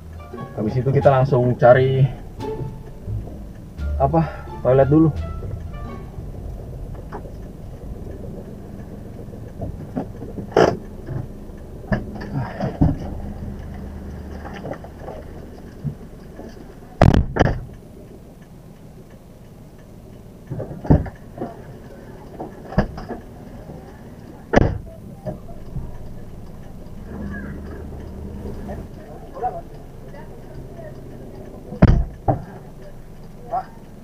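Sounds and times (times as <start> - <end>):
car engine idling: 0.0 - 34.0
thump: 24.6 - 24.8, 31.8 - 32.1
car hatch slamming: 31.8 - 32.1
car door clicks and knocks: 31.8 - 32.5.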